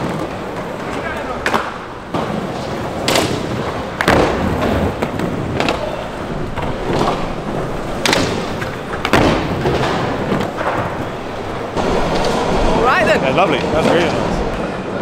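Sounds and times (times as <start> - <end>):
skateboard clacking on ground: 0.0 - 12.8
skateboard wheels rolling: 0.0 - 15.0.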